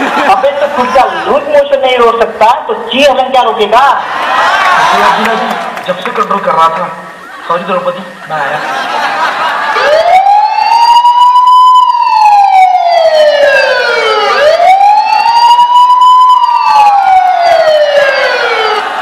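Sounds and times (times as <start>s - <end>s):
wailing siren: 7.1s - 19.0s.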